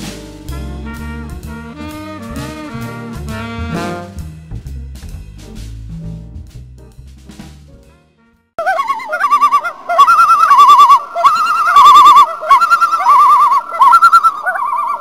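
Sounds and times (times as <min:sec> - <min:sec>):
loons calling: 0:08.6 - 0:15.0.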